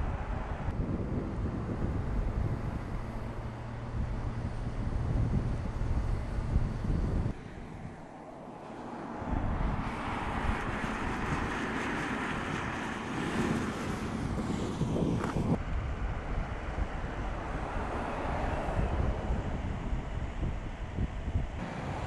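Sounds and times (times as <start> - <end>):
car driving by at speed: 16.9 - 19.8.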